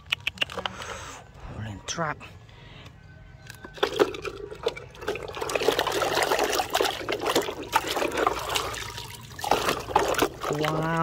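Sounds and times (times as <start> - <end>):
water trickling and splashing: 3.7 - 11.0.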